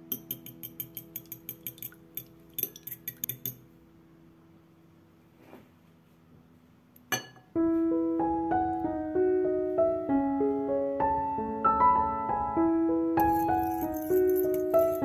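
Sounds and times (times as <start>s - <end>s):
light clink: 0.1s - 3.6s, 13.2s - 15.0s
background piano music: 7.5s - 15.0s.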